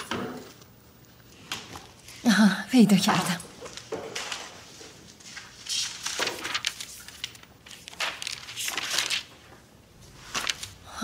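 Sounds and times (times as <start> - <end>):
paper rustling: 3.6 - 10.8.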